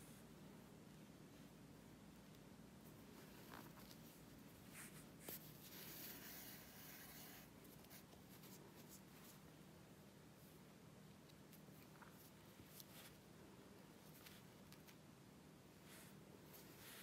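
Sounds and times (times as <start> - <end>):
thread rustling through fabric: 1.3 - 9.6, 10.4 - 15.1.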